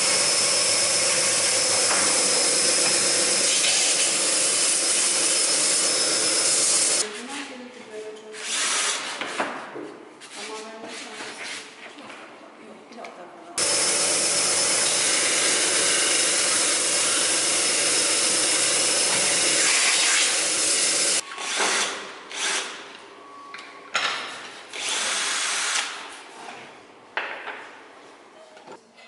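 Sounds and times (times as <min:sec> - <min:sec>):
cordless drill boring into wood: 0:00.0 - 0:07.0, 0:13.6 - 0:22.7, 0:24.8 - 0:25.9.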